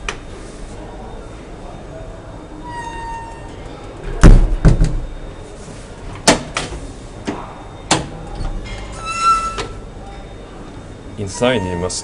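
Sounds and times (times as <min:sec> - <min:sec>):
elevator door clunks: 0:02.7 - 0:05.3, 0:06.2 - 0:09.8.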